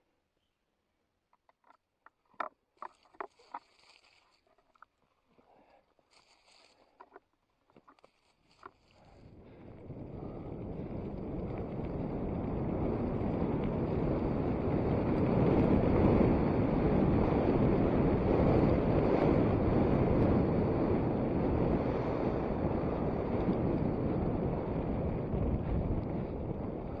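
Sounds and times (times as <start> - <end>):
wind buffeting microphone: 8.5 - 27.0.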